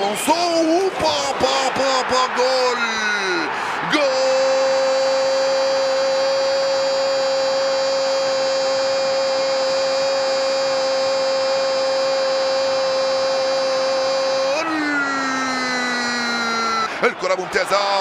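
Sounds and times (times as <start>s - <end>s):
commentator shouting: 0.0s - 18.0s.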